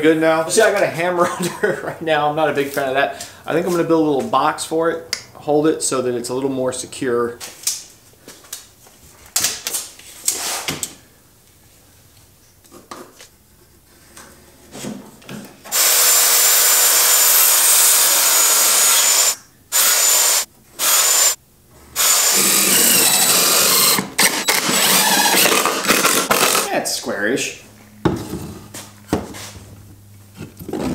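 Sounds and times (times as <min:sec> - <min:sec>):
cordless drill driving screws: 0:15.7 - 0:21.4, 0:22.0 - 0:26.7
circular saw cutting wood: 0:15.7 - 0:26.8.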